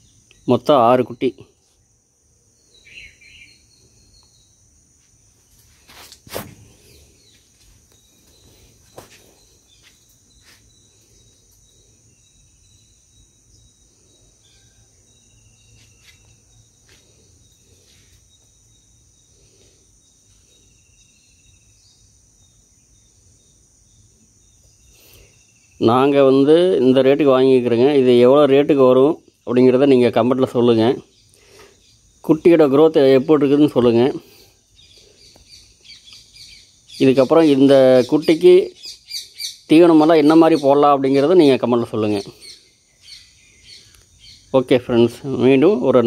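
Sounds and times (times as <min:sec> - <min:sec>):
faint bird chirps: 0:00.0 - 0:46.0
insects chirping: 0:00.0 - 0:46.0.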